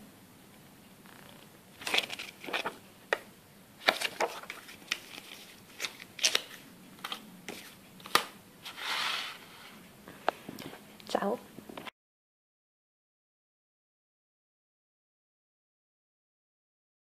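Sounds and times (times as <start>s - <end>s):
paper rustling and tapping: 1.8s - 3.2s, 3.8s - 8.4s.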